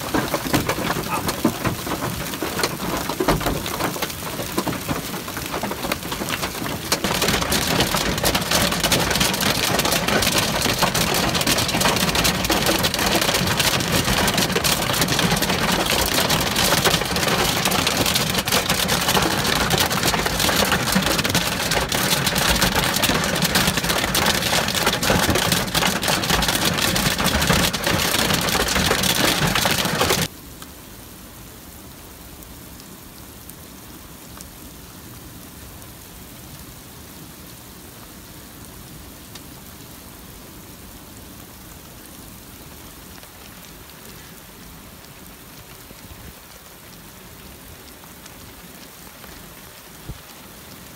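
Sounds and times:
hail pelting a vehicle: 0:00.0 - 0:30.3
rain hiss: 0:00.0 - 0:50.9.

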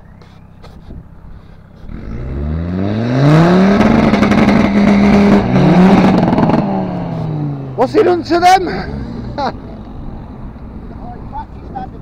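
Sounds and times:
engine revving hard: 0:01.9 - 0:09.5.

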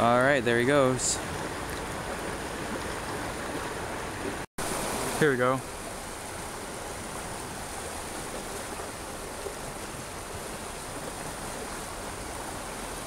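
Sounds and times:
creek water rushing: 0:00.0 - 0:13.0.

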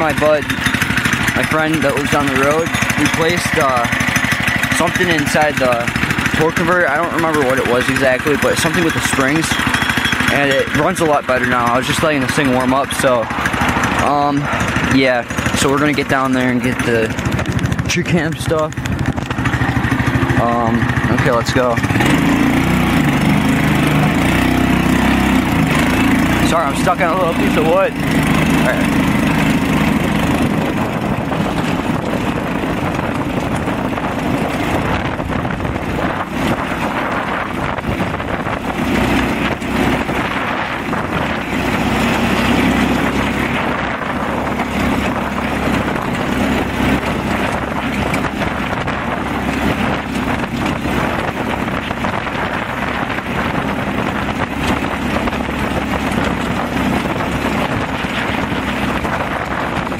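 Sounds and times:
go-kart engine running: 0:00.0 - 0:59.9.

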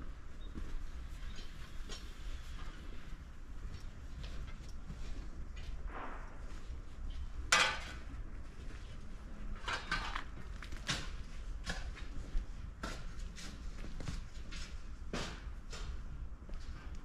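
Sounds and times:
slow uneven footsteps: 0:00.0 - 0:09.6, 0:10.3 - 0:17.0.

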